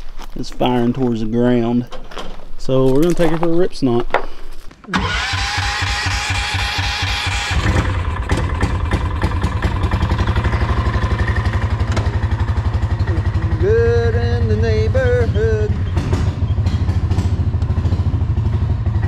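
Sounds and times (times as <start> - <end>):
engine running through straight pipe: 5.0 - 19.0.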